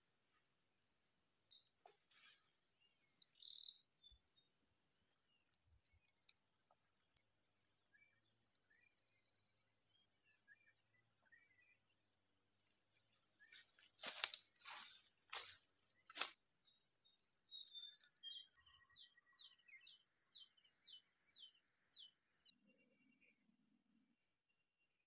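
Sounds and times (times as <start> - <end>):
insects droning: 0.0 - 18.6.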